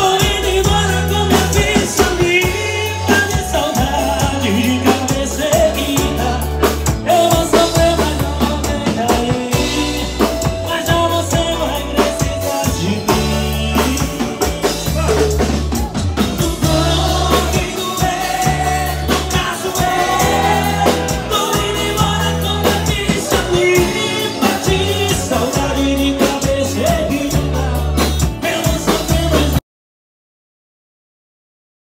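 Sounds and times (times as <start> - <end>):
acoustic guitar: 0.0 - 29.6
heavy bass and drum beat: 0.0 - 29.6
person singing: 0.0 - 29.6.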